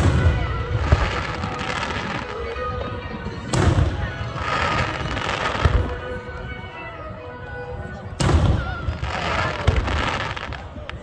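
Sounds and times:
firework stars crackling: 0.0s - 6.6s, 8.2s - 11.0s.

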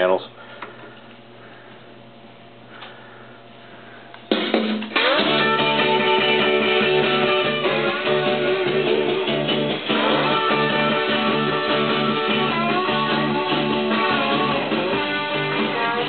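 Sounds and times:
guitar music from a record: 4.3s - 16.0s.

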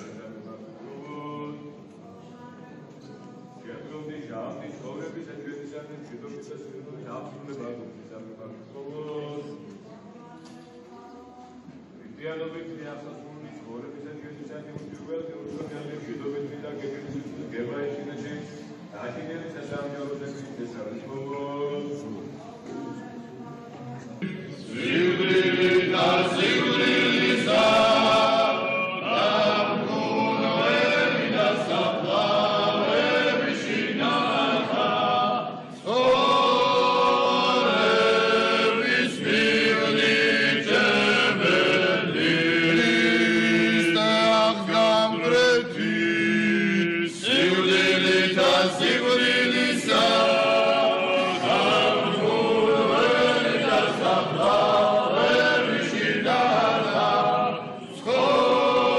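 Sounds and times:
choir chanting: 24.2s - 58.9s.

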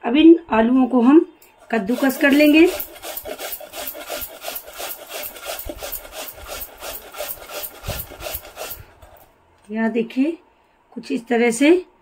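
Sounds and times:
potato grating on hand grater: 1.7s - 9.2s.

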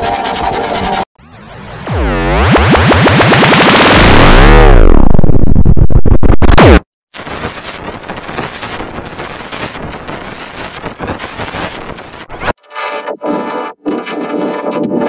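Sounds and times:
distorted tones falling in pitch: 1.2s - 6.8s
harsh crackling noise: 1.8s - 12.6s.

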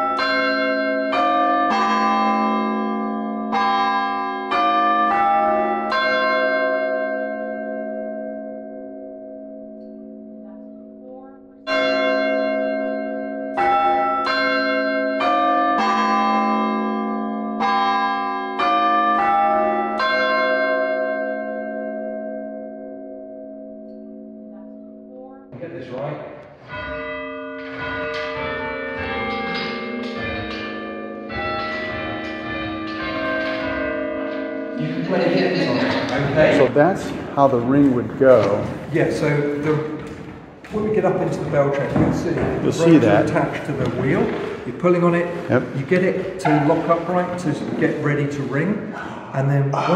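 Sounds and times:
church bells ringing: 0.0s - 49.9s.

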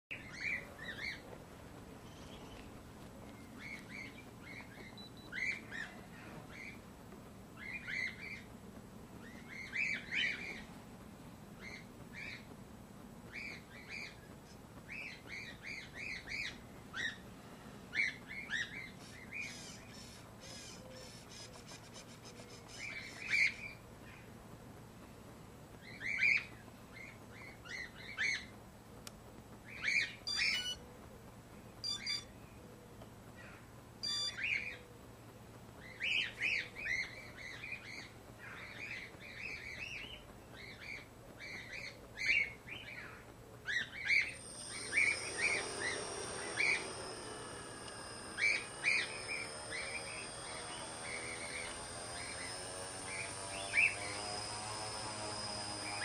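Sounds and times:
small birds chirping: 0.1s - 10.8s, 11.5s - 12.6s, 13.2s - 17.3s, 17.9s - 56.0s
drone motors whining: 30.3s - 30.8s, 43.7s - 56.0s.

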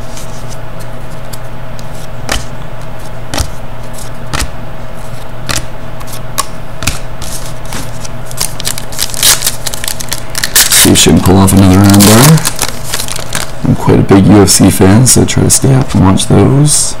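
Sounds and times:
cards snapping against stack: 5.5s - 9.4s
foil pack crinkling and tearing: 7.2s - 13.6s.

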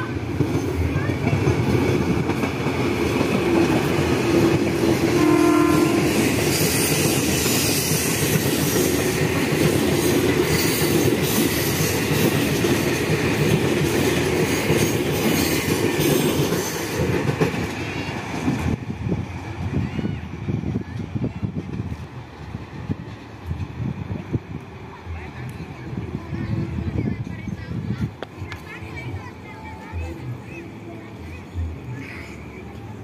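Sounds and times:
train wheels rumbling on rails: 0.0s - 33.0s
train horn: 5.0s - 6.5s.

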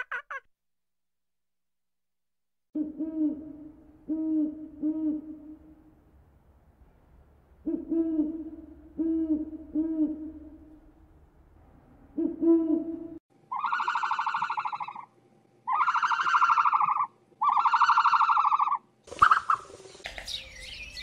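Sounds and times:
owl hooting: 2.8s - 5.8s, 7.6s - 10.8s, 12.2s - 21.0s.

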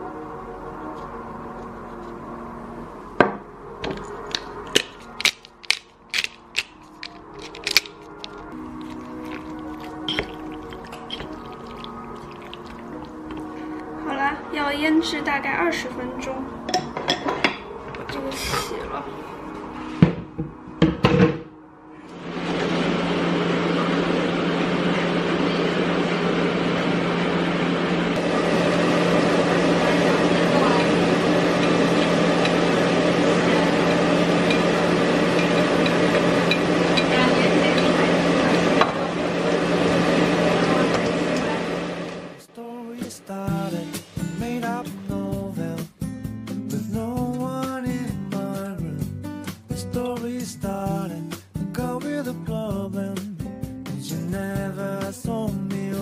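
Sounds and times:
pepper mill grinding clicks: 4.3s - 9.4s
extractor hood fan whooshing: 22.0s - 45.6s.

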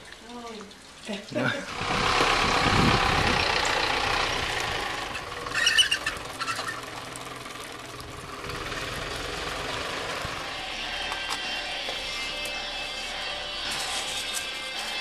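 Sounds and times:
truck engine running: 1.7s - 13.6s.

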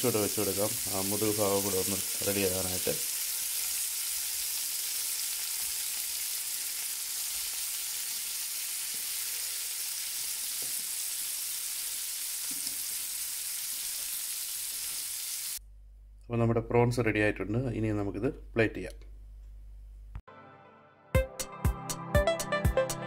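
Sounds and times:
prawns sizzling in a pan: 0.0s - 15.6s.

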